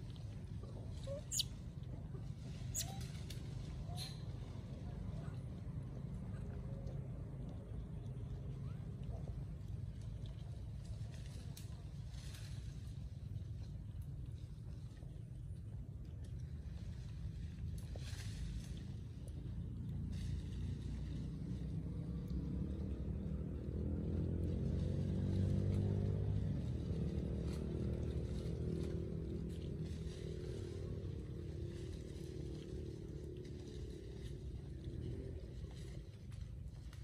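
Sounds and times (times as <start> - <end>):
passing vehicle engine: 16.6 - 37.0.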